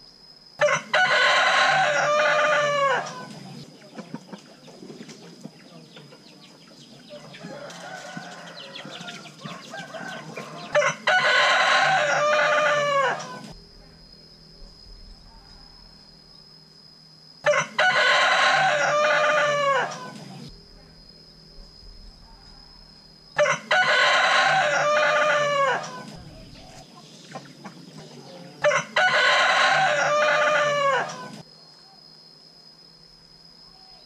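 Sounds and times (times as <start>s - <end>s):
rooster crowing: 0.6s - 3.5s, 7.1s - 13.6s, 17.4s - 20.4s, 23.4s - 26.7s, 28.1s - 31.4s.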